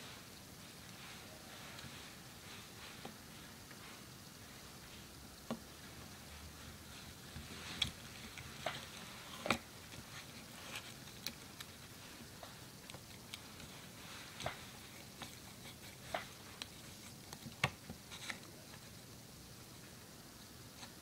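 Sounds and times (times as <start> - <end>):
putty stirred with wooden stick: 6.9 - 19.0.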